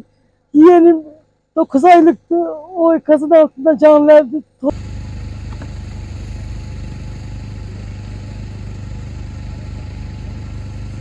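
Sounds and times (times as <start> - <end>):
engine idling: 4.7 - 11.0.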